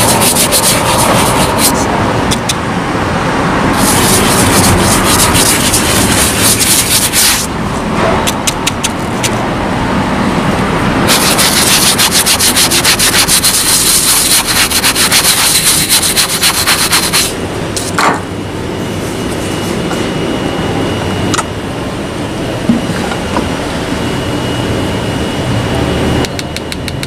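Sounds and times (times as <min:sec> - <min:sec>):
brush scrubbing suede: 0:00.0 - 0:01.9, 0:03.8 - 0:07.5, 0:11.1 - 0:17.3.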